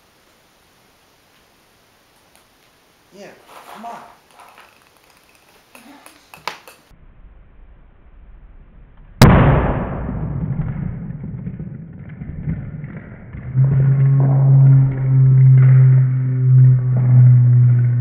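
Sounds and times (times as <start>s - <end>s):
low rumble: 6.9s - 18.0s
steady low humming tone: 7.0s - 18.0s
loud pressure burst pop: 9.2s - 14.1s.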